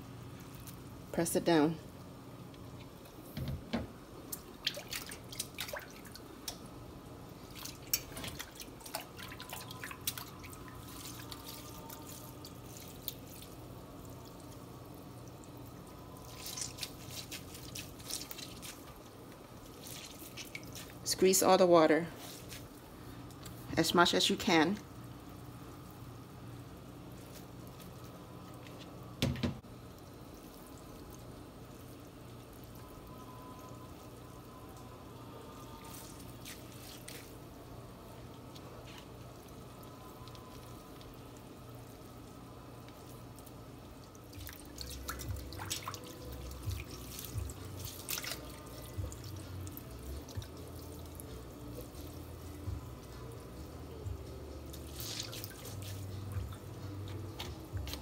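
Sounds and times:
water dripping and trickling: 4.2s - 21.4s, 29.6s - 58.0s.

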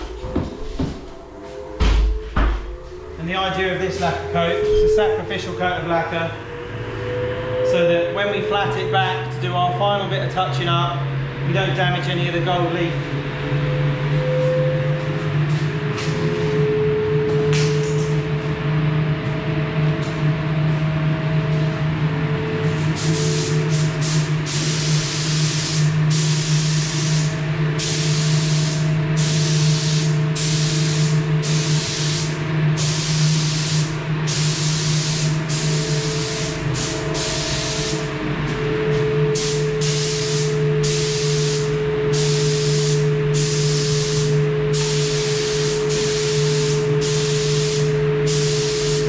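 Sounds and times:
steady low hum: 0.0s - 49.0s
spray gun hissing: 22.9s - 38.1s, 39.4s - 49.0s.

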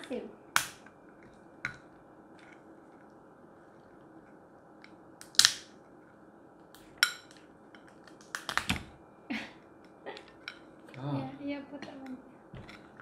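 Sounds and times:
lobster shell cracking: 5.2s - 5.8s, 6.8s - 8.8s.

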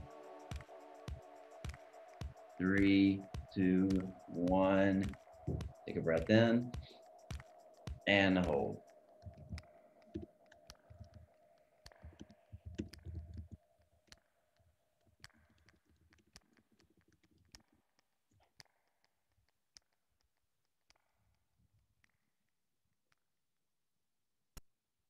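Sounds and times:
faint steady tone: 0.0s - 12.6s
soft low knocks: 5.0s - 6.9s
keyboard and mouse clicks: 9.2s - 14.2s.

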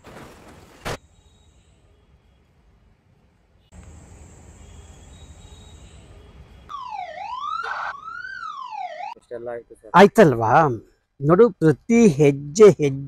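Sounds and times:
ambulance siren wailing: 6.7s - 9.2s.

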